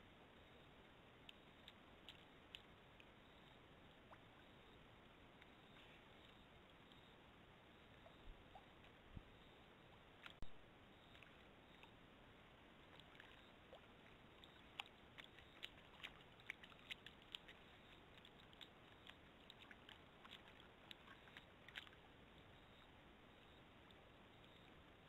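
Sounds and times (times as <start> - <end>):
steady microphone hiss: 0.0 - 16.5
small water splashes and drips: 1.2 - 3.2, 10.0 - 23.0.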